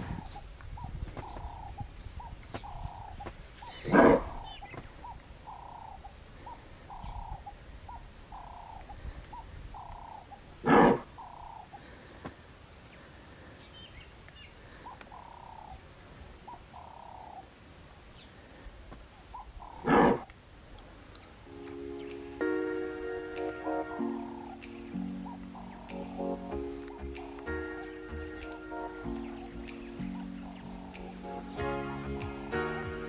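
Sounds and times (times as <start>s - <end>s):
loud animal calls: 9.8s - 11.8s, 19.4s - 20.3s.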